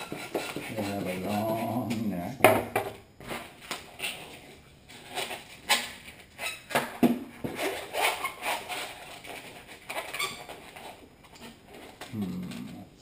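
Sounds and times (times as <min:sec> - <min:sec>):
balloon rubbing: 0:00.0 - 0:02.0
rubbery balloon squeaks: 0:00.0 - 0:02.0, 0:03.8 - 0:04.4, 0:07.4 - 0:12.8.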